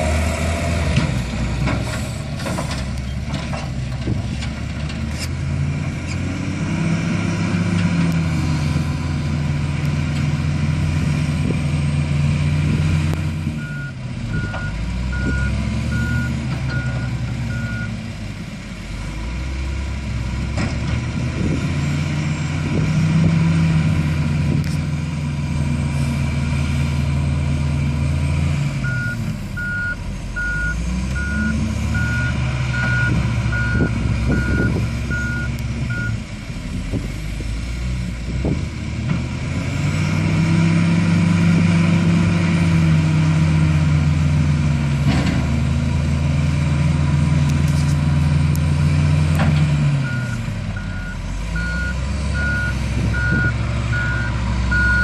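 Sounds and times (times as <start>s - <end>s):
diesel engine revving: 0.0s - 55.0s
reversing alarm beeping: 13.6s - 17.9s, 28.8s - 36.2s, 50.0s - 55.0s.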